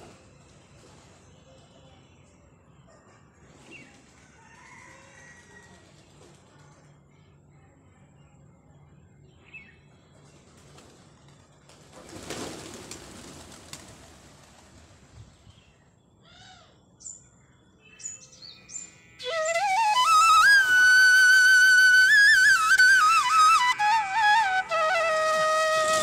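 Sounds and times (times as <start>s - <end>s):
pigeon wingbeats: 10.4s - 15.1s
flute music: 18.8s - 26.0s.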